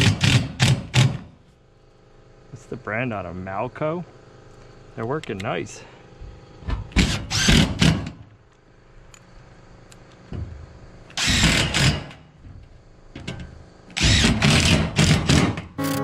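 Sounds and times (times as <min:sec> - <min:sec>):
drill boring through steel panel: 0:07.0 - 0:07.8, 0:11.2 - 0:12.0, 0:14.0 - 0:15.4.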